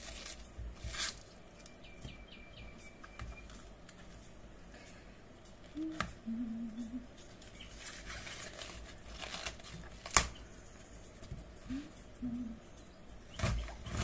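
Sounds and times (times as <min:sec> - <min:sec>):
cabbage leaves crinkling and tearing: 0:00.0 - 0:01.4, 0:07.4 - 0:10.4.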